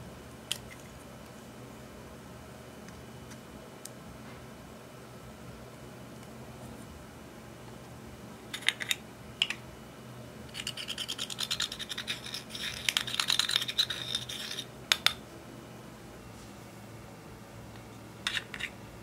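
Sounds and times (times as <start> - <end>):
tool scratching eyeshadow: 10.5 - 14.7.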